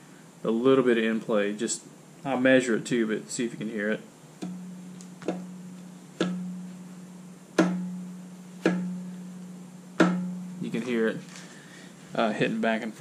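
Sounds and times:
metal knocks with ringing: 0:04.4 - 0:06.8, 0:07.6 - 0:09.2, 0:09.9 - 0:10.7.

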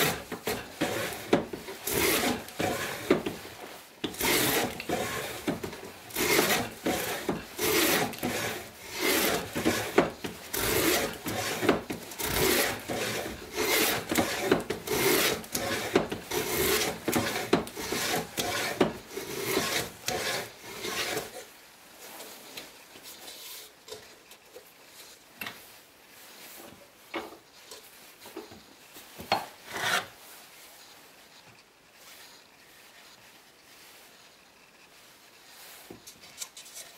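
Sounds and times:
plane shaving wood: 0:00.0 - 0:21.4, 0:29.6 - 0:30.3.

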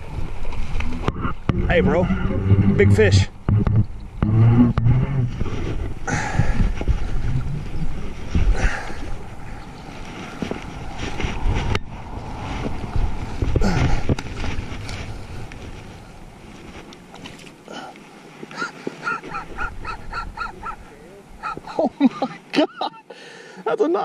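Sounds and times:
wind buffeting microphone: 0:00.0 - 0:16.9, 0:19.0 - 0:21.9.

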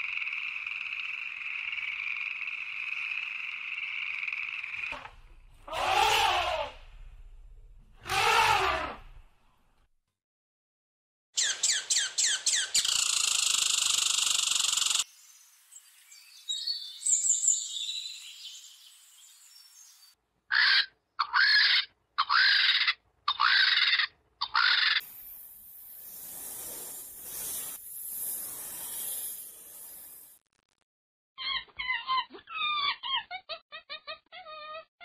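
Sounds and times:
harsh buzzing call: 0:05.7 - 0:06.8, 0:08.0 - 0:09.0
soft hissing noise: 0:25.0 - 0:30.4.

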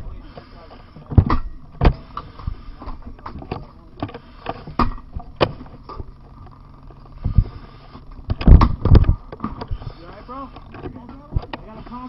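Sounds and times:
knocks and thuds of gear and debris: 0:08.2 - 0:09.8.

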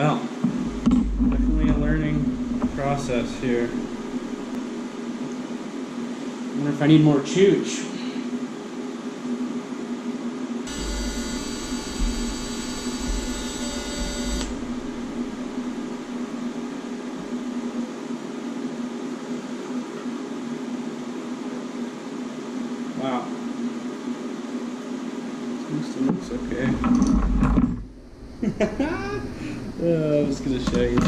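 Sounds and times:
welding arc buzzing whine: 0:00.0 - 0:05.3, 0:10.6 - 0:17.8
steady hum: 0:00.0 - 0:31.0.

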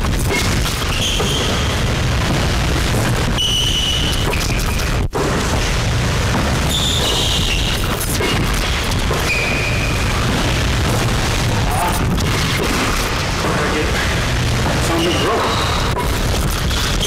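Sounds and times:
low rumble: 0:00.0 - 0:04.3, 0:05.0 - 0:15.0
sneakers squeaking on hardwood floor: 0:00.9 - 0:01.8, 0:06.7 - 0:08.4.

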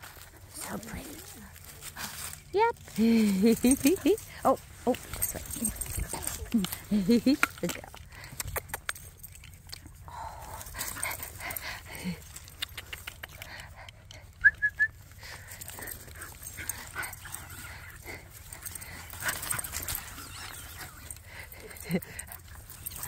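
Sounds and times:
small clicks and rustles: 0:00.0 - 0:14.4, 0:15.2 - 0:23.0
dogs whining: 0:14.2 - 0:23.0
dog yipping: 0:19.3 - 0:21.2.

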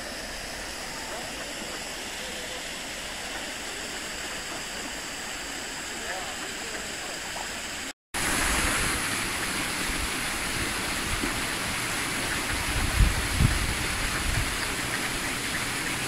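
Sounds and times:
flowing water rushing: 0:00.0 - 0:16.0.

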